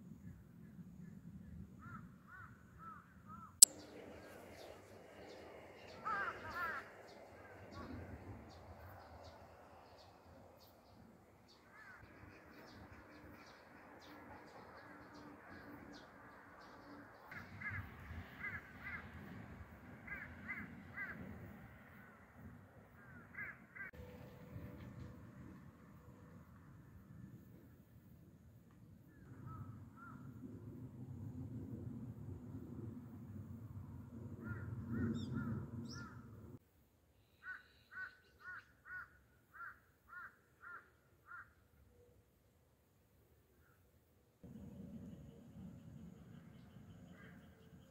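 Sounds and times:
crow cawing: 6.0s - 6.8s, 11.7s - 12.0s, 37.4s - 41.6s
low rumble: 44.4s - 47.5s.

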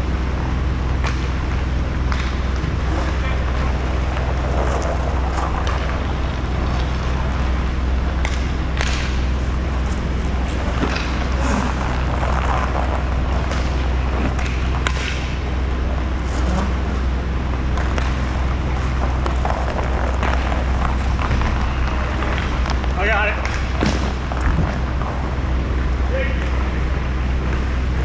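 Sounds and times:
low rumble: 0.0s - 28.0s
stick and puck knocks: 2.0s - 4.2s, 8.2s - 9.4s, 13.5s - 15.4s, 17.7s - 18.3s, 23.4s - 24.7s
sharp crack: 8.2s - 9.3s
skate wheels clattering on floor: 8.2s - 15.4s.

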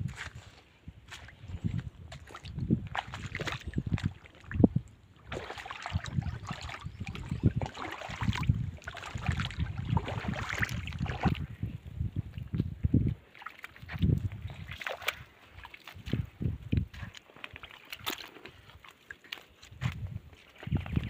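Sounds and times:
wind buffeting microphone: 0.0s - 15.3s, 15.9s - 17.1s, 19.7s - 21.0s
seawater splashing among rocks: 5.2s - 11.4s.

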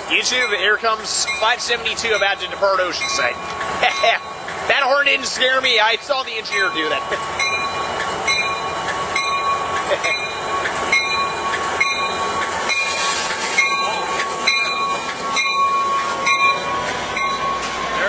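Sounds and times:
high whine: 0.0s - 18.0s
train passing on rails: 0.0s - 18.0s
bell ringing: 0.2s - 18.0s.

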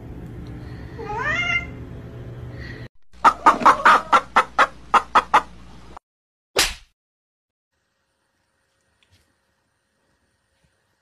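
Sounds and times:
chickens clucking: 3.2s - 5.6s.

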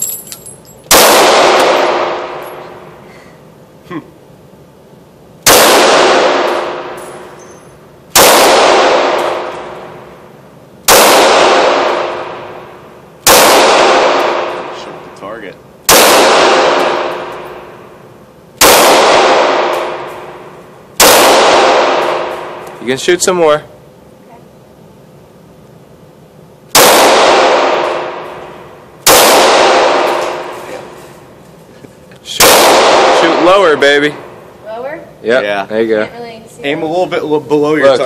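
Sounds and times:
pistol shots echoing indoors: 0.9s - 2.8s, 5.4s - 7.4s, 8.1s - 10.2s, 10.8s - 15.0s, 15.9s - 18.0s, 18.6s - 22.8s, 26.6s - 31.0s, 32.3s - 34.5s.

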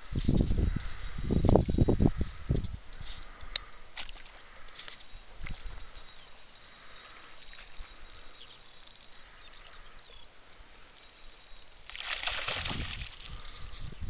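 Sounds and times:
light ticks: 2.6s - 4.2s
water washing along shore: 11.7s - 13.8s.

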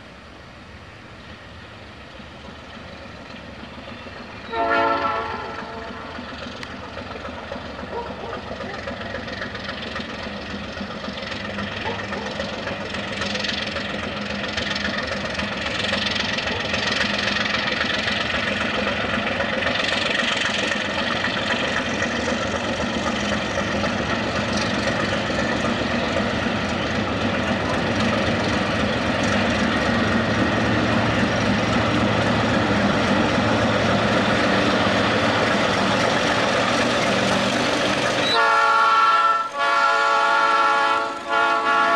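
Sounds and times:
diesel locomotive engine running: 0.0s - 41.9s.

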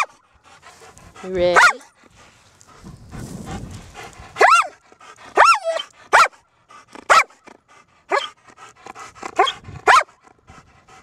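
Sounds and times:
dog barking: 1.6s - 1.9s, 4.4s - 4.8s, 5.4s - 6.4s, 7.1s - 7.4s, 8.1s - 8.4s, 9.4s - 10.2s.

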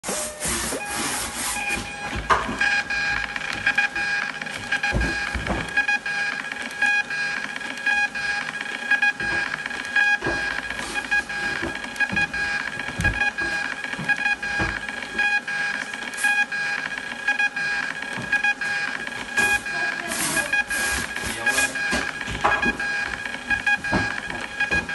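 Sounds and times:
label printer feed motor whine: 0.0s - 24.9s
printer knocks: 1.8s - 5.9s, 11.4s - 14.9s, 21.0s - 24.9s.

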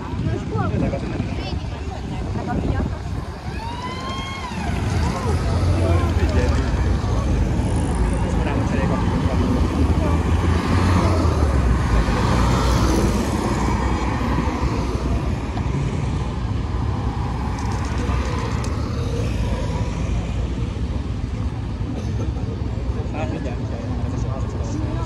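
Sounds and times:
rumble of old cars: 0.0s - 25.0s.

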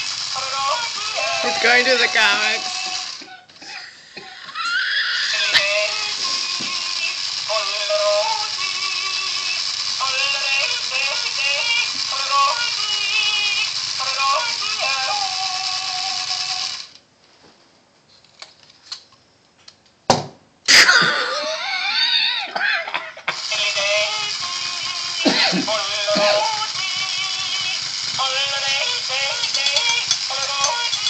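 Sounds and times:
tinny yodel song from toy speaker: 0.0s - 3.3s, 5.0s - 16.3s
toy figure rattling: 0.0s - 3.4s, 5.3s - 17.0s, 23.4s - 31.0s.

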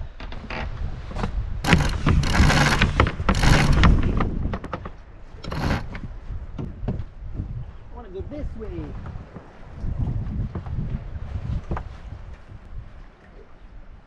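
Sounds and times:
wind and water rumble: 0.0s - 14.0s
sailing deck hardware clicking: 0.2s - 7.0s.

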